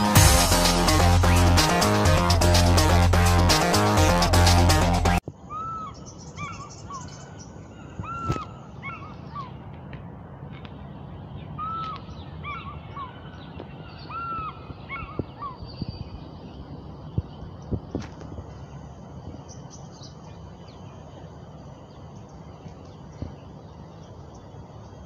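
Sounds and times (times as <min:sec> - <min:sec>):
eagle whistled calls: 0:05.4 - 0:09.5, 0:11.6 - 0:16.1
steady low hiss: 0:13.3 - 0:25.0.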